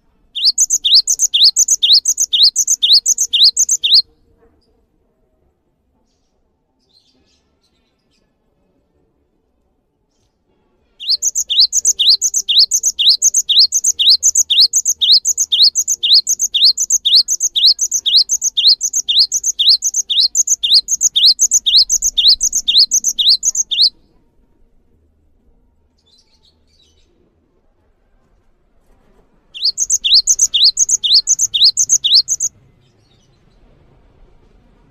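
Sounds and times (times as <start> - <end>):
bird singing repeated rising note: 0.4 - 4.0, 11.0 - 23.9, 29.6 - 32.5
faint bird twitter: 0.4 - 4.0, 11.0 - 24.0, 29.6 - 32.5.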